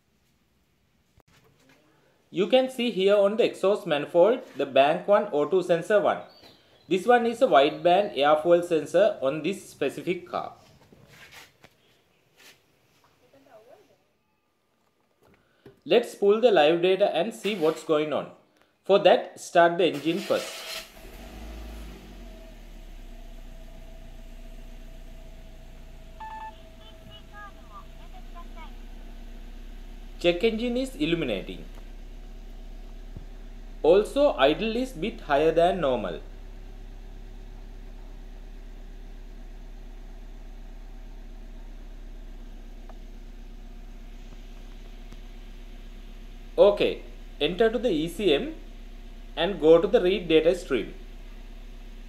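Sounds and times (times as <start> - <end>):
car engine idling: 20.9 - 52.0
short electronic beep: 26.2 - 27.4.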